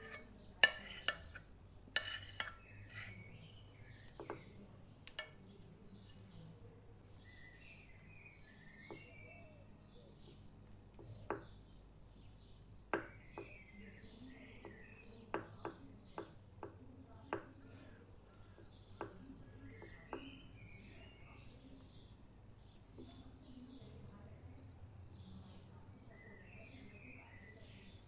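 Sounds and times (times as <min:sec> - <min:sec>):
metal spoon clinking glass dish: 0:00.0 - 0:01.4, 0:02.0 - 0:03.2
faint birds chirping: 0:00.0 - 0:28.0.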